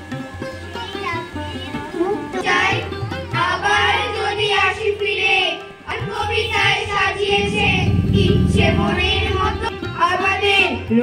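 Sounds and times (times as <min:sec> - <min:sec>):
children singing: 0:02.4 - 0:10.8
low drone: 0:06.2 - 0:10.3.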